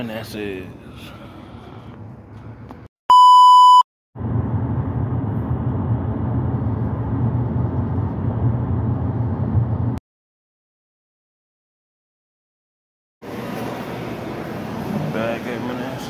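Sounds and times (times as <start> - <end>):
test-tone beep: 3.1 - 3.8.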